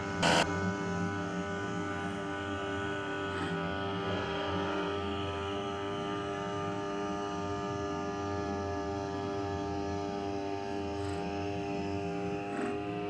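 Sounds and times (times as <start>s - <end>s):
music drone chord: 0.2s - 0.5s.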